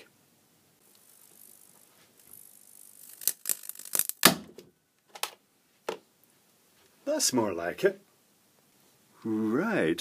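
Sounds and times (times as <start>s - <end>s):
faint electrical hiss: 0.0s - 10.0s
circuit board cracking and popping: 2.9s - 4.5s.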